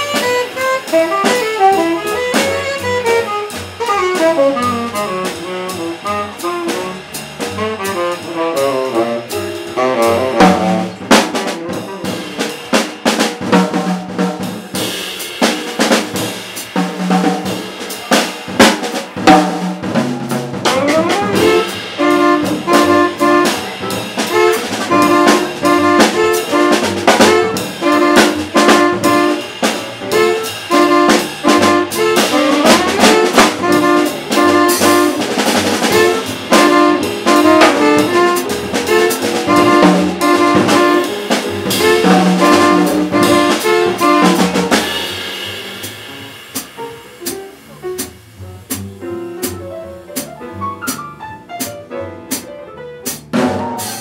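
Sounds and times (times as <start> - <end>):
saxophones playing a riff: 0.0 - 12.5, 20.6 - 45.4
drum kit: 0.0 - 54.0.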